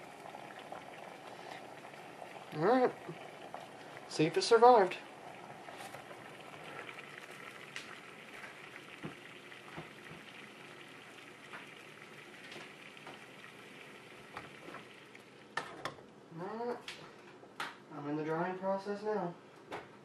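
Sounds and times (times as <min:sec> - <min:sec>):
water boiling in saucepan: 0:00.0 - 0:16.0.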